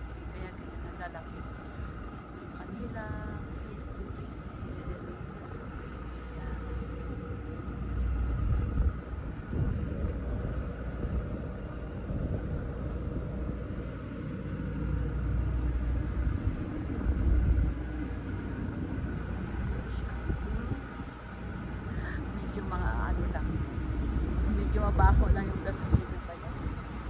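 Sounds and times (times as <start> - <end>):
steady faint hum: 0.0 - 27.0
wind buffeting microphone: 0.0 - 27.0.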